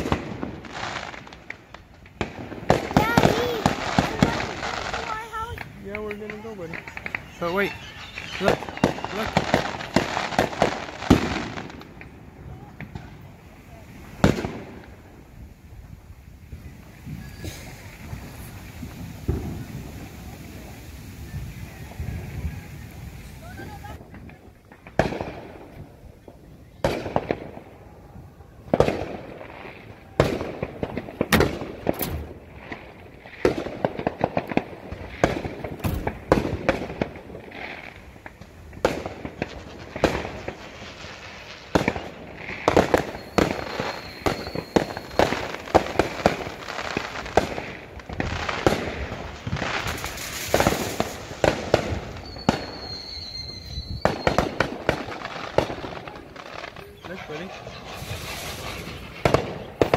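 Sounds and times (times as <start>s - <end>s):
firework shells bursting: 0.0s - 13.2s, 28.6s - 59.9s
firework crackling: 0.0s - 59.9s
high thin whistle: 43.0s - 45.3s, 52.2s - 54.4s.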